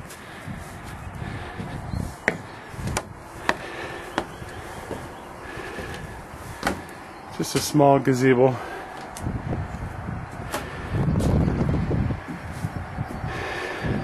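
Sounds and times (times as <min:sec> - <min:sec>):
footsteps on wooden floor: 0:00.8 - 0:07.0, 0:12.2 - 0:12.8.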